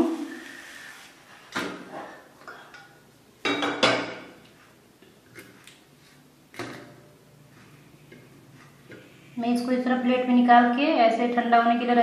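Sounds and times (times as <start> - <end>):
metal kitchenware clanking: 1.8 - 4.4.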